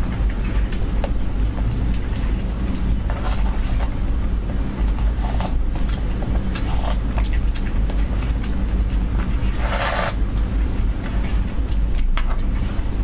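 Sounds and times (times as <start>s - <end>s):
steady low rumble: 0.0s - 13.0s
slurping noodles: 9.5s - 10.2s.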